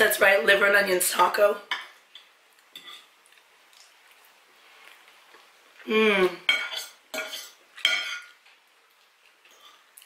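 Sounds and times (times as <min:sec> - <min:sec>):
chewing: 0:02.1 - 0:05.9, 0:07.5 - 0:10.0
person humming: 0:05.8 - 0:06.5
fork scraping a ceramic plate: 0:06.5 - 0:08.3.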